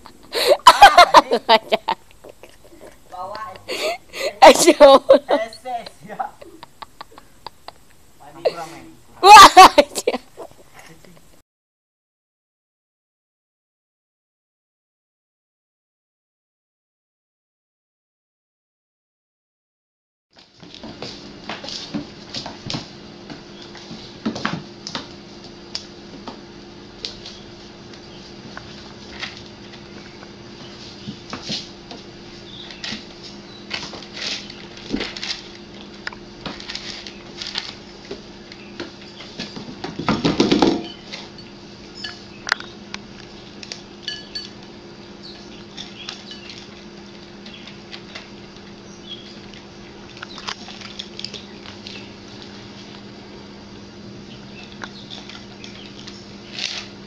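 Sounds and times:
cats crunching kibble: 0:32.4 - 0:38.7, 0:45.6 - 0:53.1, 0:54.7 - 0:57.0.

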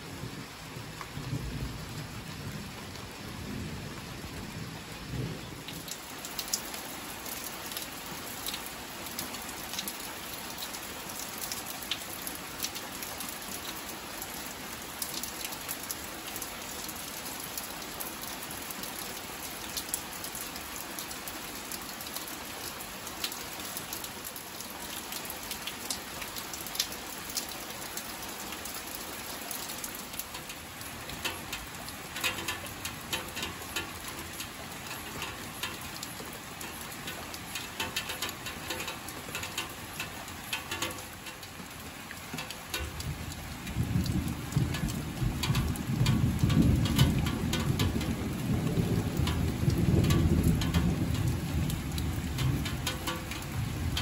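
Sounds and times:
rain drops tapping: 0:00.0 - 0:54.0
thunder rolling: 0:42.8 - 0:52.8.

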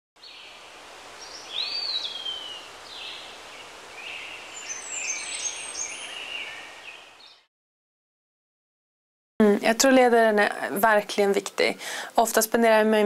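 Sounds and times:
steady outdoor hiss: 0:00.2 - 0:07.4, 0:09.5 - 0:13.0
birds calling and chirping: 0:00.2 - 0:07.5.

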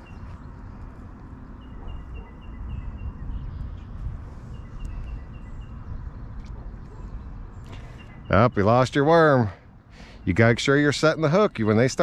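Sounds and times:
wind rumbling on microphone: 0:00.0 - 0:08.7.

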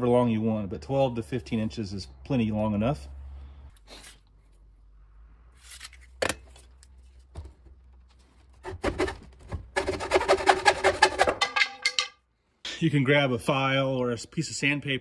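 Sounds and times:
hacksaw cutting wood: 0:08.6 - 0:11.4.

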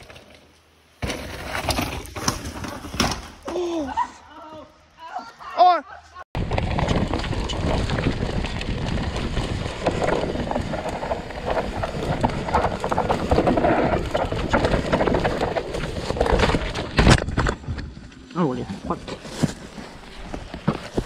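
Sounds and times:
bike rattling over rocks: 0:00.0 - 0:03.6, 0:06.4 - 0:21.0
wind on camera: 0:06.4 - 0:17.9.

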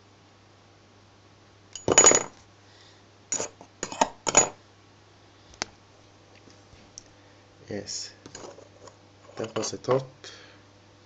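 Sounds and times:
metal cover plate clattering on bench: 0:01.8 - 0:02.3.

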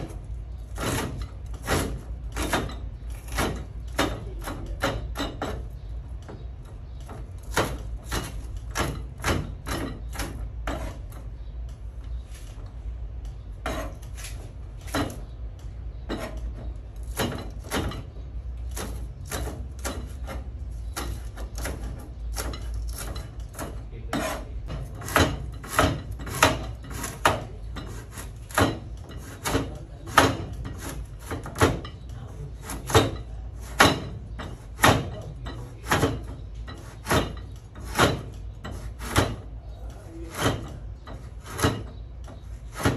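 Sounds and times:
knife chopping on plastic board: 0:18.7 - 0:31.8, 0:42.7 - 0:42.9.

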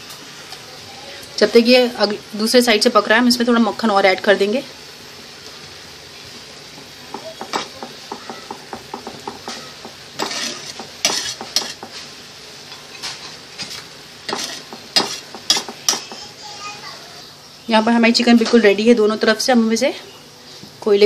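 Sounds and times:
chicken sizzling in a frying pan: 0:00.0 - 0:19.7
knife scraping and tapping a pan: 0:06.8 - 0:12.1, 0:12.7 - 0:16.2.

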